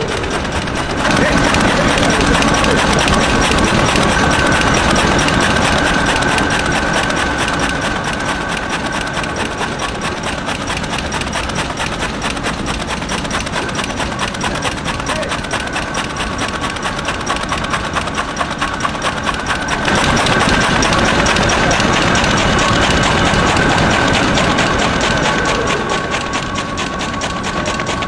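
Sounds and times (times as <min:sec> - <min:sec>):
cutting machine clattering: 0:00.0 - 0:28.0
steady high hum: 0:00.0 - 0:28.0.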